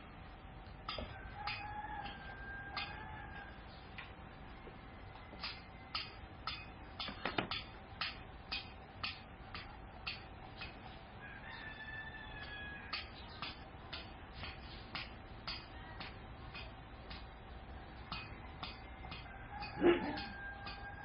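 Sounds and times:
rooster crowing: 0:01.0 - 0:03.7, 0:04.4 - 0:06.2, 0:11.2 - 0:13.1, 0:18.1 - 0:21.0
steady ticking: 0:05.4 - 0:10.9, 0:12.9 - 0:21.0.

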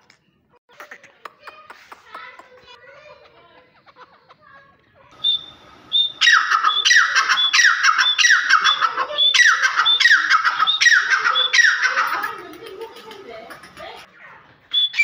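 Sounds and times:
francolin calling: 0:05.2 - 0:12.2.

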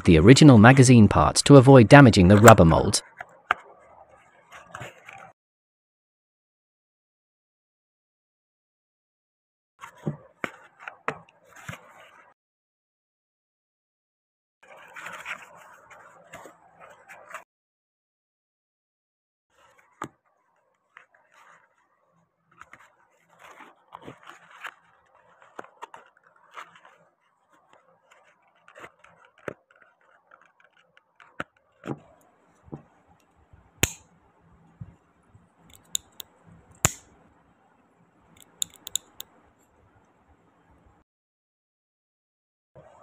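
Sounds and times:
plastic scraping and rustling: 0:14.6 - 0:17.4, 0:19.6 - 0:33.7
sharp plastic clicks: 0:33.8 - 0:34.0, 0:35.7 - 0:37.2, 0:38.4 - 0:39.4.

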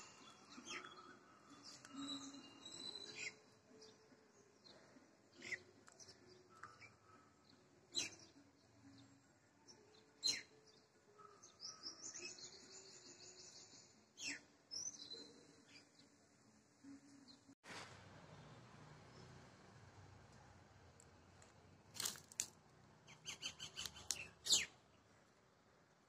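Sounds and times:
bird chirps: 0:00.0 - 0:04.0, 0:23.1 - 0:24.8.

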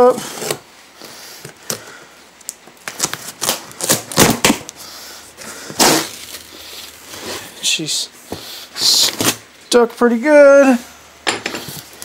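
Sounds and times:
cardboard sharp cracks: 0:02.5 - 0:04.8, 0:05.7 - 0:06.4.

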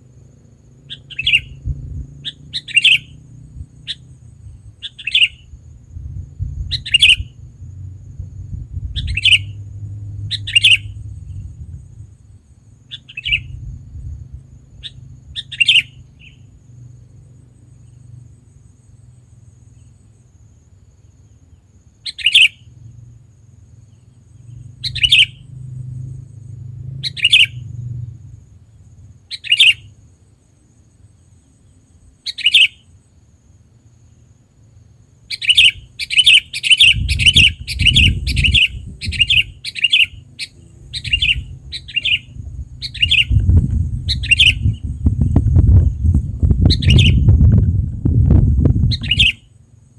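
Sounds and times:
bird calling clear notes: 0:00.8 - 0:01.6, 0:02.2 - 0:03.2, 0:04.8 - 0:05.5, 0:06.7 - 0:07.4, 0:09.0 - 0:09.6, 0:10.3 - 0:11.5, 0:12.9 - 0:13.6, 0:14.8 - 0:16.5, 0:22.0 - 0:22.7, 0:24.5 - 0:25.4, 0:27.0 - 0:27.7, 0:29.3 - 0:30.0, 0:32.2 - 0:33.0, 0:35.2 - 0:45.0, 0:46.7 - 0:47.3, 0:48.9 - 0:49.5
low rumble: 0:05.8 - 0:12.2, 0:40.6 - 0:49.1.

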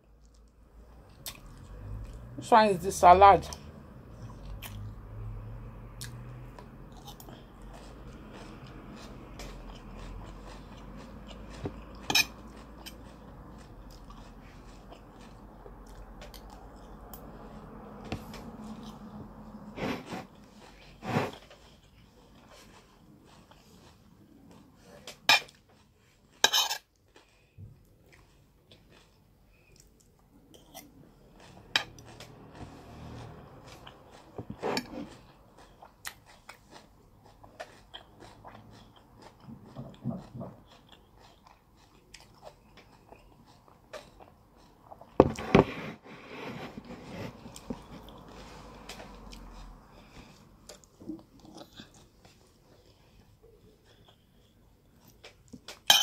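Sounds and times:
chewing and crunching: 0:00.0 - 0:02.3, 0:06.0 - 0:19.4, 0:20.3 - 0:45.2, 0:46.8 - 0:55.9
metal spoon scraping a plate: 0:12.1 - 0:13.0, 0:26.4 - 0:26.9.

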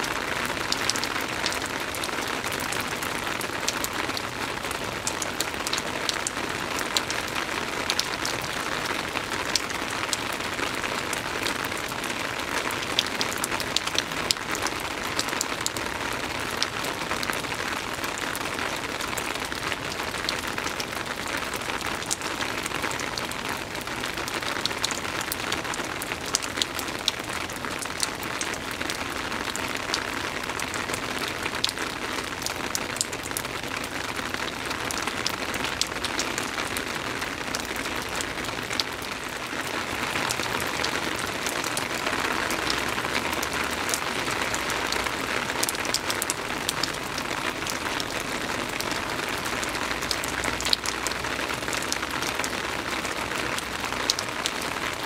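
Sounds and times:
soft steady rain: 0:00.0 - 0:55.0
raindrop ticks: 0:09.4 - 0:11.5, 0:40.2 - 0:52.4.

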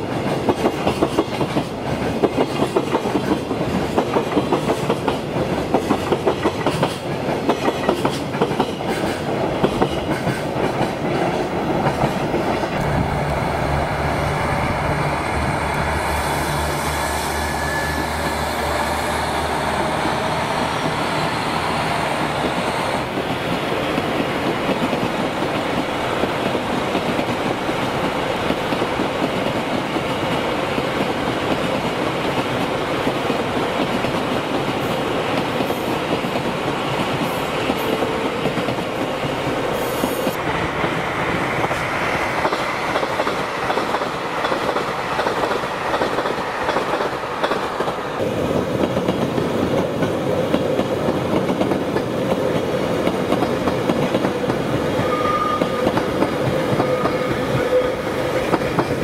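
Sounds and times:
train cars rolling rumble: 0:00.0 - 0:59.0
diesel train engine drone: 0:10.6 - 0:29.1, 0:36.4 - 0:59.0
train hiss: 0:11.6 - 0:24.7, 0:39.3 - 0:48.8.

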